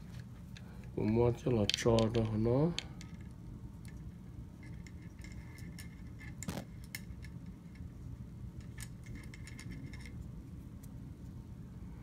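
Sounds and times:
cord rubbing swish: 6.4 - 6.7.

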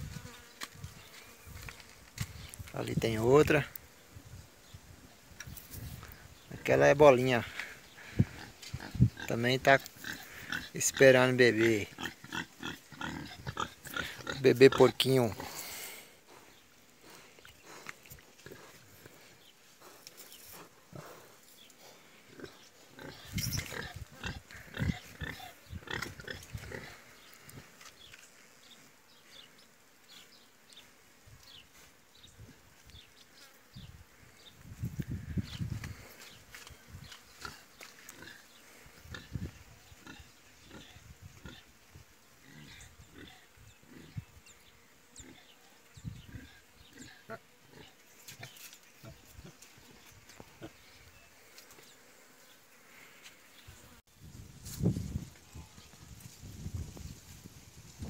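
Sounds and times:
pig rooting in dirt: 8.0 - 15.6, 22.3 - 28.2.

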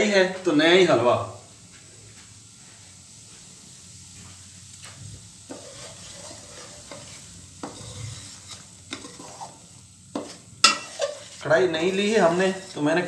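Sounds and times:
semolina sizzling in pan: 0.0 - 13.0
spoon tapping and scraping pan: 5.5 - 12.8.

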